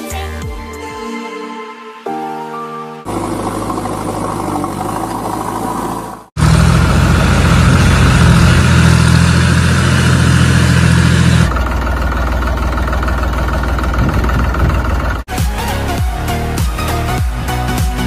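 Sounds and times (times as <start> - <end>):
tractor engine running: 3.1 - 16.0.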